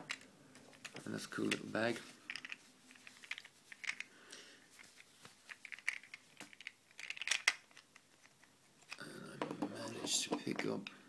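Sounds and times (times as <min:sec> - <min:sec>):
plastic capsules clicking: 0:02.2 - 0:04.1, 0:04.8 - 0:09.0.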